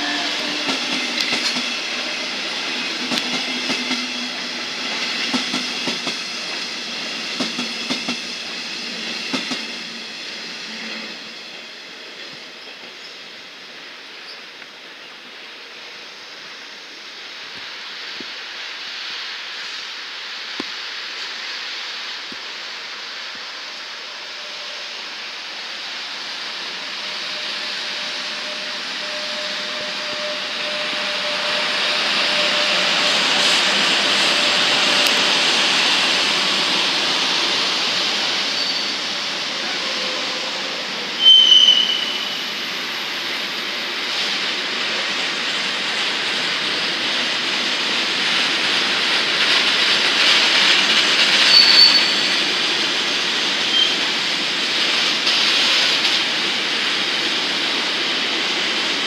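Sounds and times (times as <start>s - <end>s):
freight train rolling past: 0.0s - 59.0s
high-pitched wheel squeals: 27.0s - 33.1s, 38.5s - 39.0s, 41.2s - 42.6s, 51.4s - 52.5s, 53.7s - 54.0s.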